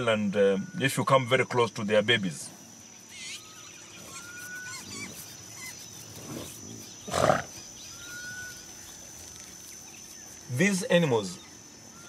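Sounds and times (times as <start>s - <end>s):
high insect drone: 0.0s - 12.0s
buffalo grunting call: 6.2s - 8.7s.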